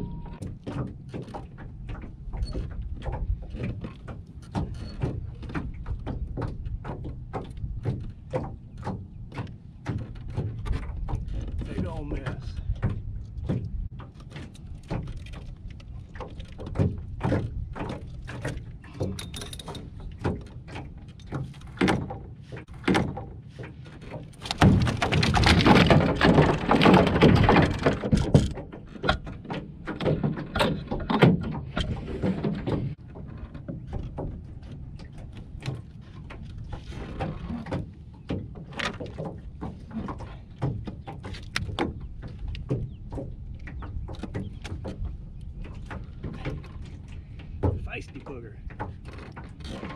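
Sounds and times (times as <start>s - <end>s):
fish thrashing and rattling: 0.6s - 48.0s, 48.6s - 49.9s
fish thumping against boat hull: 24.4s - 32.9s.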